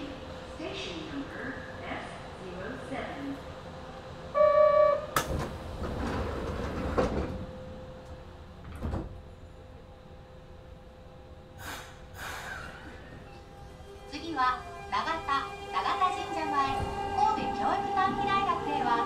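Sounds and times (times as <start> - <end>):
sliding doors shutting with knock: 5.2 - 7.5, 8.6 - 9.2
short air hisses: 11.6 - 12.9.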